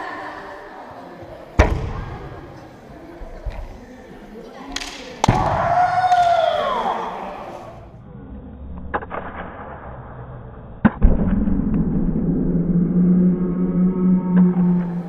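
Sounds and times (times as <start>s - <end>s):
long drawn-out shout: 5.4s - 7.8s.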